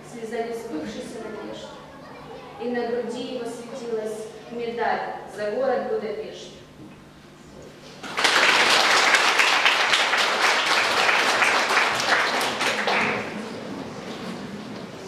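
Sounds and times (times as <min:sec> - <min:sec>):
audience applauding: 0:08.0 - 0:14.4.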